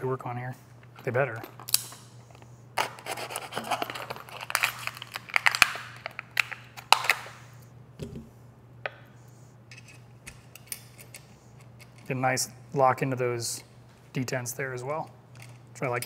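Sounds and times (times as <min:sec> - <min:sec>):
crinkly plastic packaging rustling: 0:02.8 - 0:07.3.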